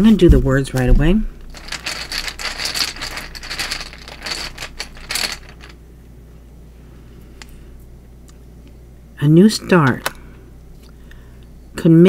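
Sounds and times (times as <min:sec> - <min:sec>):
cards being shuffled: 0:01.5 - 0:05.7.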